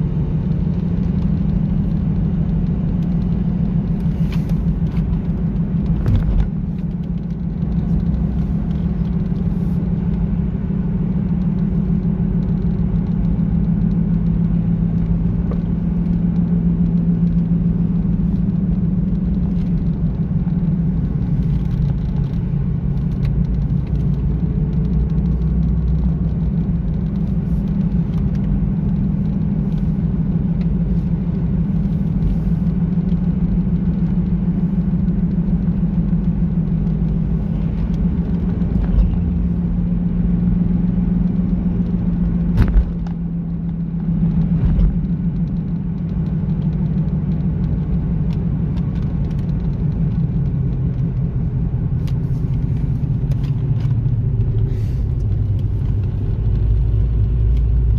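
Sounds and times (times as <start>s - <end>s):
car engine drone: 0.0s - 57.9s
road noise: 0.0s - 57.9s.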